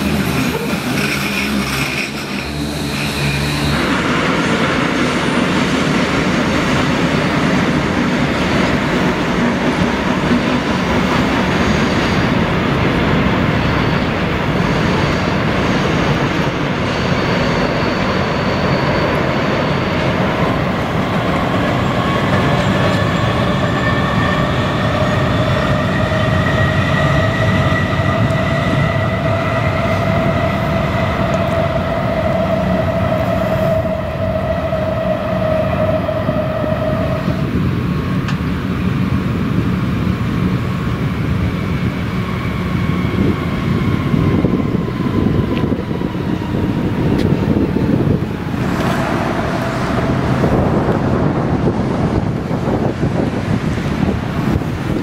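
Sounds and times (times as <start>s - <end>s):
train wheels rumbling on bridge: 0.0s - 55.0s
steady rising whine: 41.0s - 53.3s.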